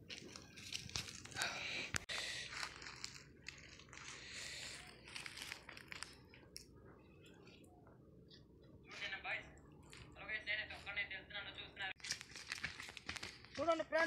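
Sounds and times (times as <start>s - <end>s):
dry leaves crunching underfoot: 0.1s - 1.6s, 2.2s - 6.4s, 12.0s - 13.6s.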